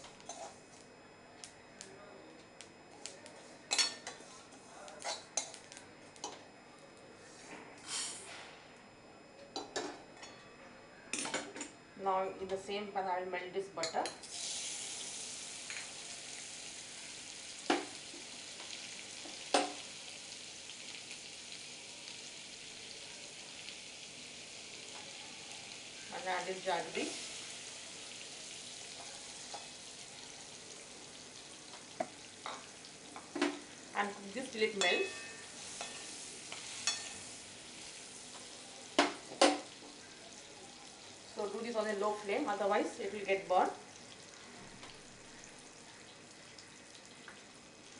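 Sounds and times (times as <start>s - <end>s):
butter sizzling: 14.2s - 47.9s.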